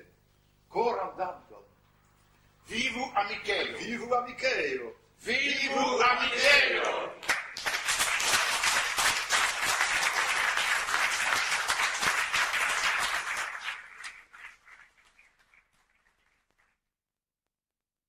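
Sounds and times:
audience applauding: 0:06.7 - 0:16.4.

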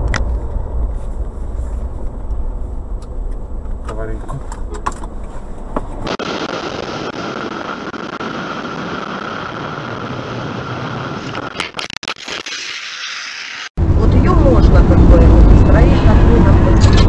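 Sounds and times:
wind rush: 0:06.0 - 0:11.6, 0:13.8 - 0:17.0.

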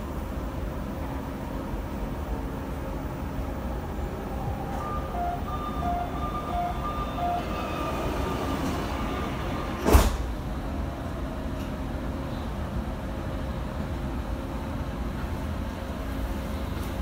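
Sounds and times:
train low rumble: 0:00.0 - 0:17.0
high-low electronic door beeps: 0:04.6 - 0:09.9.

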